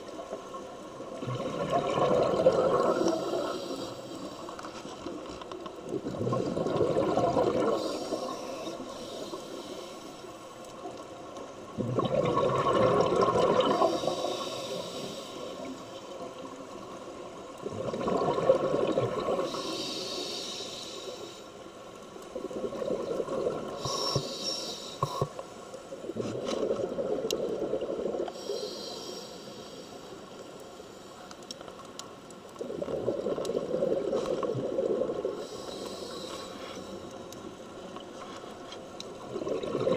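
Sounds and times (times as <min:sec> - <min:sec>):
diver breathing through regulator: 0:19.4 - 0:21.4, 0:23.8 - 0:25.4, 0:28.3 - 0:30.0, 0:35.4 - 0:37.0.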